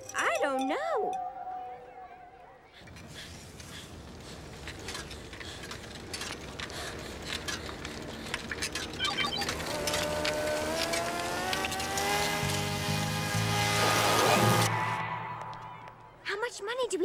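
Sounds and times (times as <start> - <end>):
bicycle rattling and clicking: 2.8 - 13.3.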